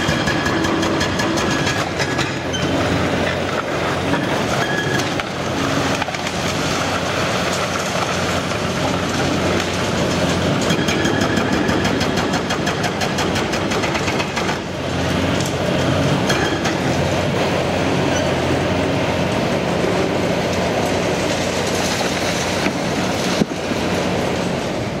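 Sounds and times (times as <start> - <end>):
hydraulic breaker hammering concrete: 0.0 - 7.0, 7.6 - 14.9, 15.6 - 17.2
excavator diesel engine: 0.0 - 25.0
falling concrete crashing: 5.2 - 14.7.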